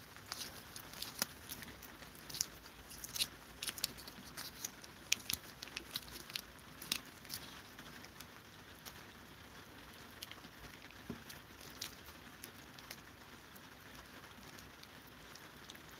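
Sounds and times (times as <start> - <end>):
cats licking wet clicks: 0.0 - 15.9.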